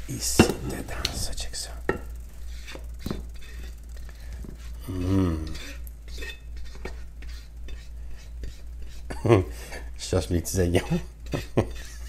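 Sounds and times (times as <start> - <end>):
utensil scraping a wok: 0.0 - 12.0
person humming: 4.8 - 5.8.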